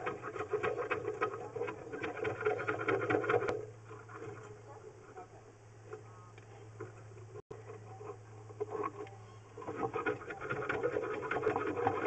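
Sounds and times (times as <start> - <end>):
camera rod scraping inside drain: 0.0 - 4.6, 8.5 - 12.0
steady low hum: 0.0 - 12.0.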